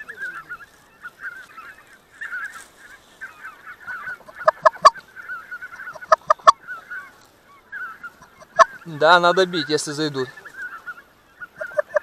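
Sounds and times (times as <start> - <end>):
geese calling: 0.0 - 12.0
loud sharp goose honks: 3.2 - 7.1, 7.7 - 12.0.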